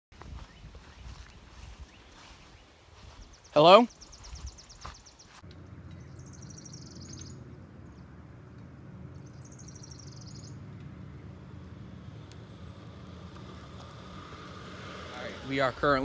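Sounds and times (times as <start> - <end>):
low outdoor rumble: 5.3 - 16.0
small bird trilling: 6.0 - 7.4, 9.3 - 10.6.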